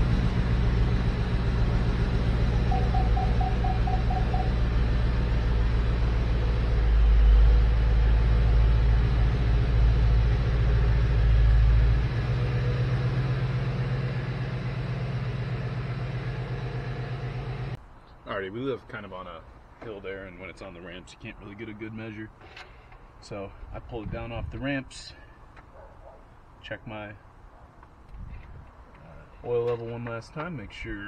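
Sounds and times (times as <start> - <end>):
car engine idling: 0.0 - 17.8.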